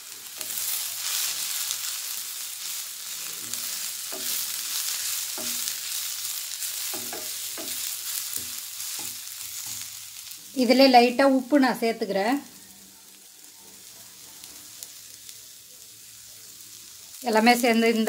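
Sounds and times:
vegetables sizzling in oil: 0:00.0 - 0:18.0
spatula scraping and knocking pan: 0:03.3 - 0:10.0.

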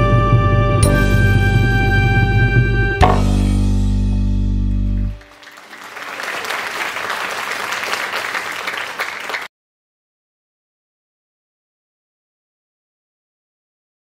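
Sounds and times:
dance music final chord: 0:03.0 - 0:05.2
audience applause: 0:05.0 - 0:09.5.

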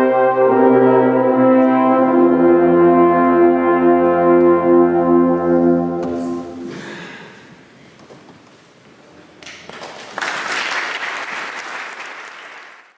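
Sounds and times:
alphorns and brass chord: 0:00.0 - 0:06.8
audience applause: 0:09.7 - 0:12.9.

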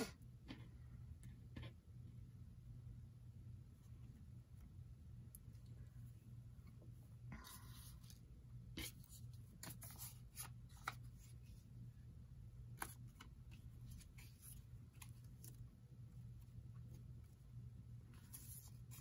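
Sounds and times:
low steady hum: 0:00.0 - 0:19.0
paper rustling: 0:08.8 - 0:11.6, 0:18.1 - 0:19.0.

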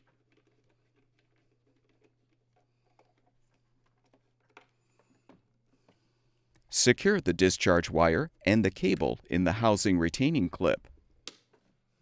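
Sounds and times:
hands handling plastic: 0:00.0 - 0:06.7.

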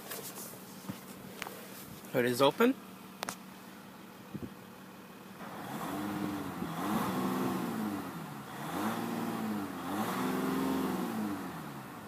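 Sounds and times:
diesel engine revving: 0:05.4 - 0:12.0.

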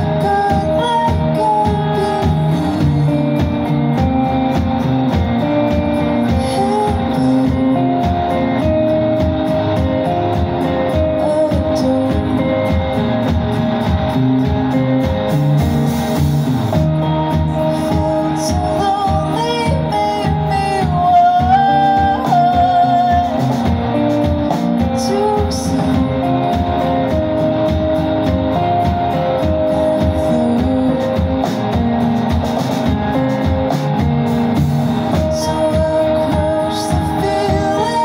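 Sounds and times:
woman singing: 0:00.0 - 0:03.7, 0:06.0 - 0:08.7, 0:10.8 - 0:13.1, 0:17.0 - 0:27.2, 0:29.4 - 0:31.6, 0:35.2 - 0:38.0
bass guitar: 0:00.0 - 0:38.0
drums: 0:00.0 - 0:38.0
electric guitars: 0:00.0 - 0:38.0.

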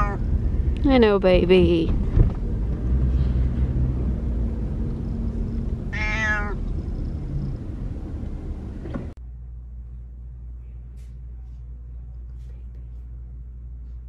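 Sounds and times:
cat meowing: 0:00.0 - 0:00.2, 0:05.9 - 0:07.1
car cabin rumble: 0:00.0 - 0:09.2
low room hum: 0:00.0 - 0:14.0.

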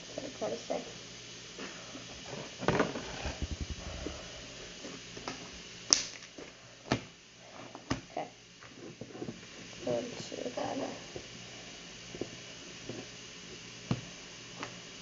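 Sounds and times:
low rattling pulses: 0:02.7 - 0:05.2.

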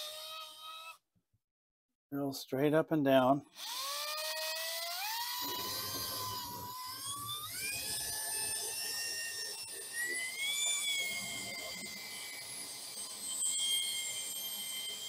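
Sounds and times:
electric drill motor whine: 0:00.0 - 0:01.0, 0:03.5 - 0:15.0
hole saw teeth rasping: 0:03.6 - 0:09.0.

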